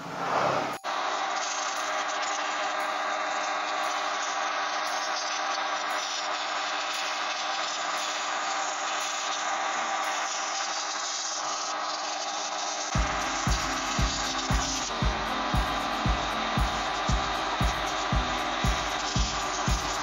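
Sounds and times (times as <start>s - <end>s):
low hum: 13.0s - 20.0s.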